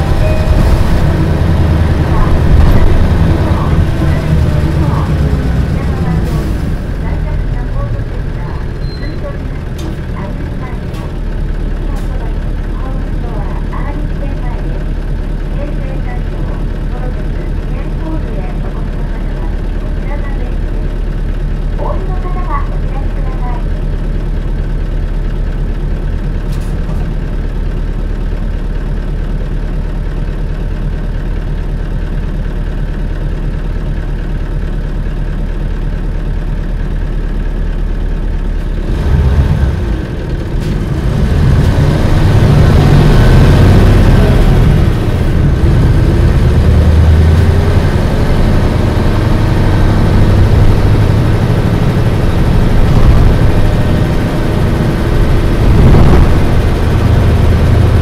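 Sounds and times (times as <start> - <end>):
bus diesel engine: 0.0 - 58.0.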